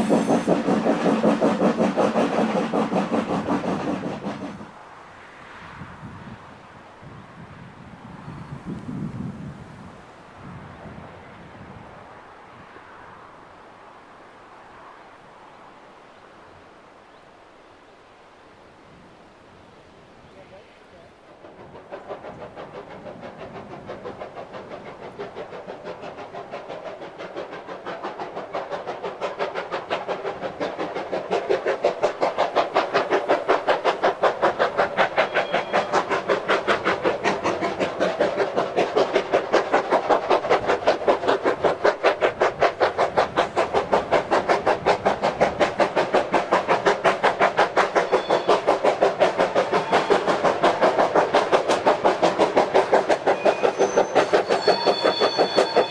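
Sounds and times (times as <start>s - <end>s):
steam locomotive exhaust beat: 0.0s - 5.0s, 20.9s - 55.9s.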